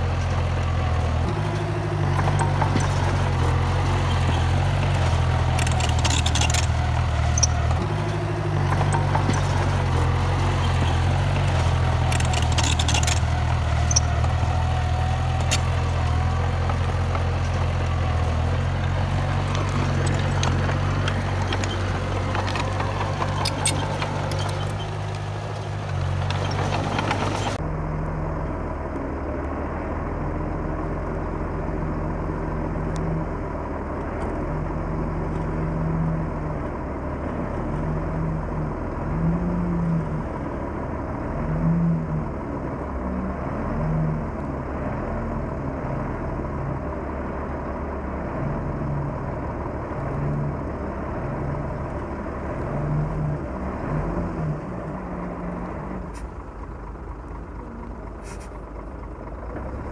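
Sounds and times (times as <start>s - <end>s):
bulldozer diesel engine working: 0.0s - 59.9s
dense rattle of clicks: 1.2s - 27.6s.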